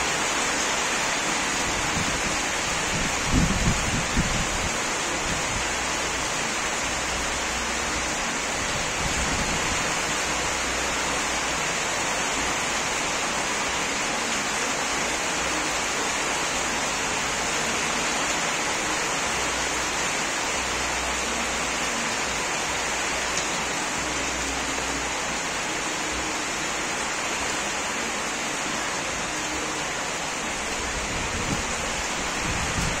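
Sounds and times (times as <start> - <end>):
steady rain falling: 0.0 - 33.0.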